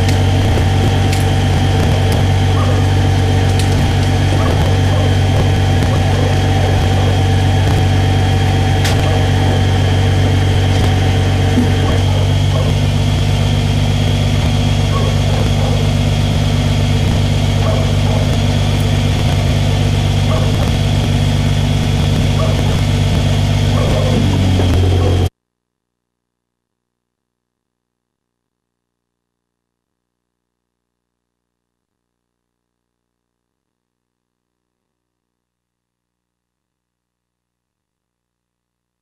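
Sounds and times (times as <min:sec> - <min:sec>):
engine idling: 0:00.0 - 0:25.3.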